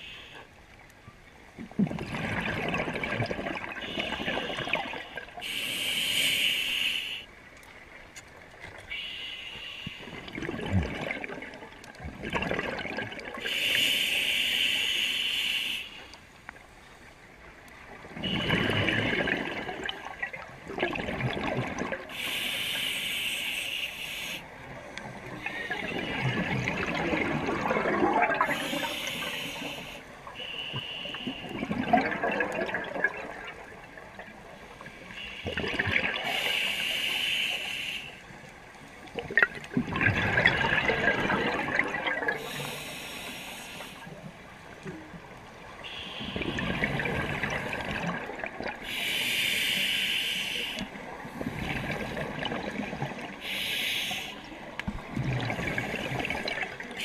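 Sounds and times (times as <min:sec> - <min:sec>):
gurgle of exhaled bubbles: 0:01.6 - 0:05.3, 0:10.1 - 0:13.5, 0:18.0 - 0:22.1, 0:25.1 - 0:29.7, 0:31.4 - 0:34.4, 0:35.4 - 0:36.5, 0:39.1 - 0:42.8, 0:46.3 - 0:48.8, 0:51.2 - 0:53.4, 0:54.9 - 0:57.0
air hissing through regulator: 0:22.1 - 0:24.4, 0:36.3 - 0:38.2, 0:42.4 - 0:44.1, 0:48.8 - 0:50.9, 0:53.4 - 0:54.5.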